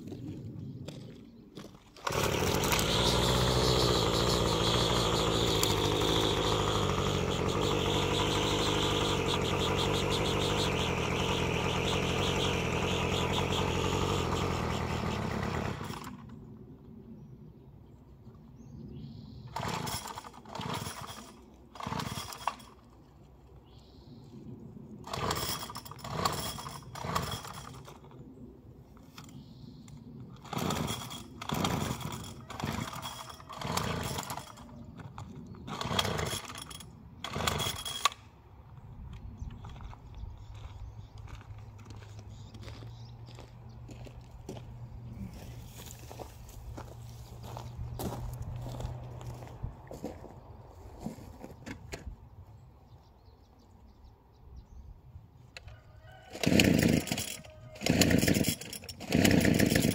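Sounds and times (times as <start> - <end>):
engine pull-start bursts: 2.0 - 16.4, 19.5 - 23.0, 25.0 - 28.2, 30.4 - 38.3, 56.3 - 59.9
string trimmer engine running: 2.0 - 16.4, 19.5 - 22.9, 25.0 - 28.2, 30.4 - 38.2, 45.1 - 49.4, 56.2 - 59.9.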